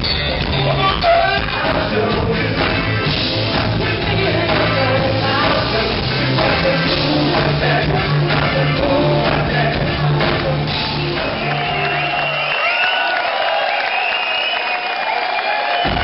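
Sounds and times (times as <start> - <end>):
electric bass line: 0.0 - 12.1
live funk band playing: 0.0 - 12.2
person singing: 0.6 - 12.0.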